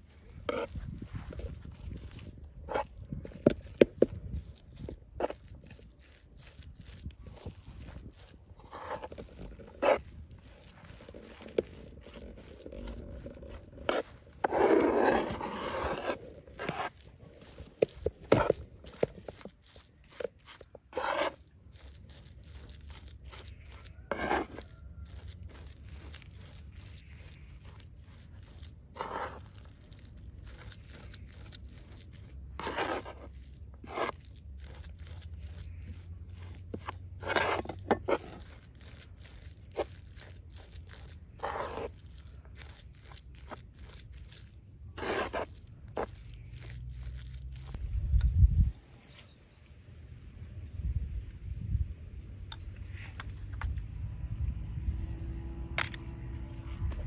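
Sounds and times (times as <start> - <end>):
blade scraping across board: 0.0 - 47.8.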